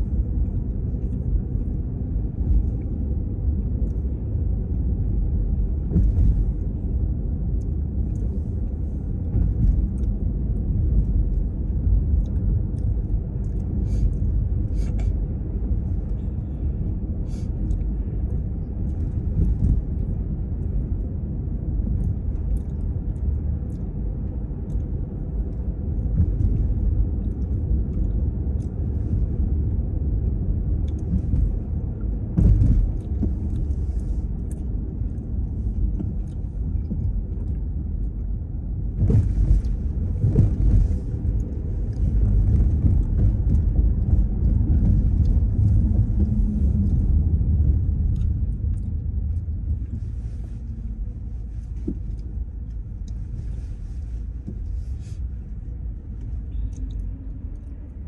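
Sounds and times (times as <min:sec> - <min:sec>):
car driving rumble: 0:00.0 - 0:58.0.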